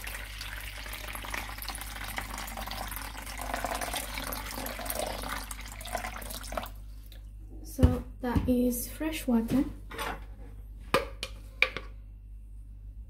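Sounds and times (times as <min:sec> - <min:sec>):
water pouring into plastic bowl: 0:00.0 - 0:06.8.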